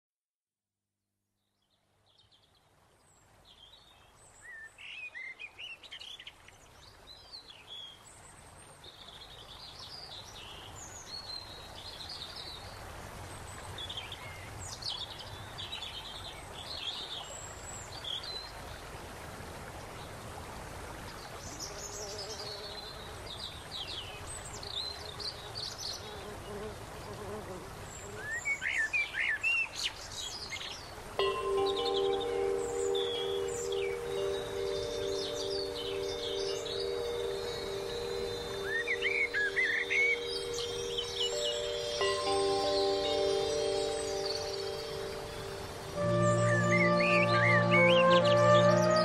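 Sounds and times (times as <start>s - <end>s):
outdoor background hiss: 1.2s - 49.0s
small birds chirping: 21.5s - 49.0s.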